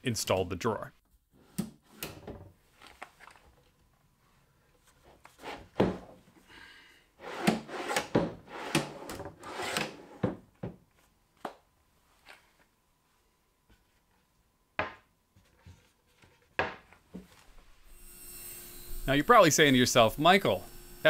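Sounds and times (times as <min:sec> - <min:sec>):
drawer rolling on metal slides: 0:07.2 - 0:10.2.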